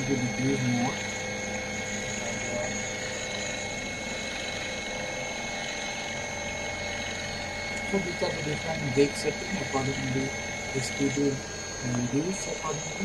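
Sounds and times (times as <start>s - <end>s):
small electric motor whining: 0.0s - 13.0s.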